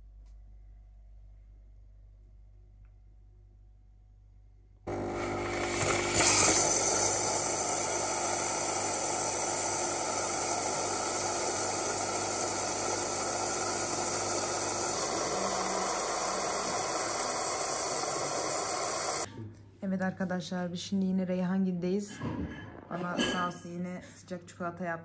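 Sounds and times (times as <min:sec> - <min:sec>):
coffee machine pump hum: 0:04.9 - 0:19.3
steam hissing: 0:04.9 - 0:19.3.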